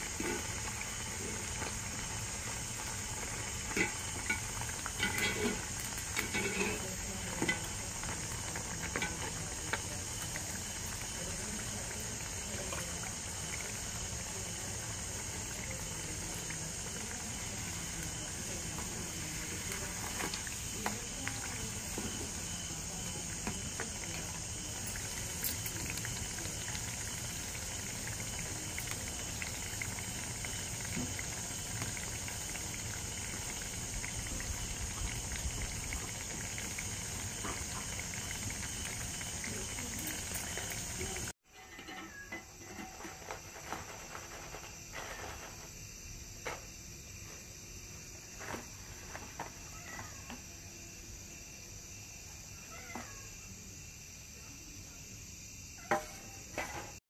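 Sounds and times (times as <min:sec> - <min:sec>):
fritters sizzling in oil: 0:00.0 - 0:45.6
crickets chirping: 0:00.0 - 0:57.0.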